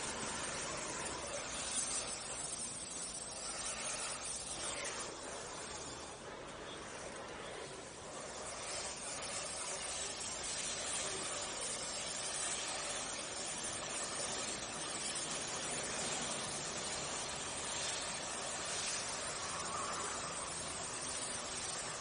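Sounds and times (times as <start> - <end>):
welding hiss: 0.0 - 22.0.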